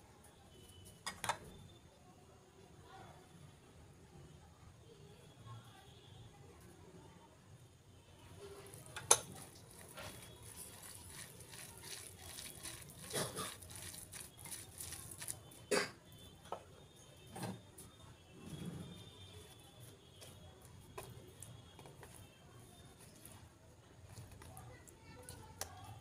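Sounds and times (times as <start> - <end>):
fingers squelching and rubbing: 8.7 - 15.6.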